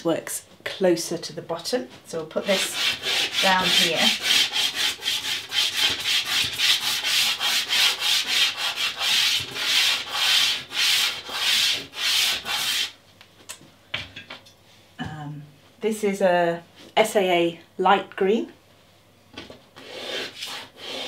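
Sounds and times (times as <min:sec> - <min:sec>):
pastel rubbing on paper: 0:02.4 - 0:12.9, 0:19.8 - 0:21.0.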